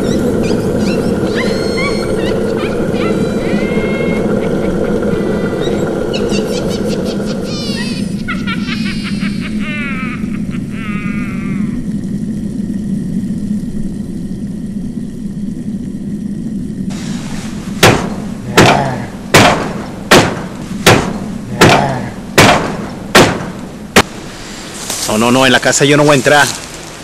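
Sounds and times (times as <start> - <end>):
low steady hum: 0.0 - 27.0.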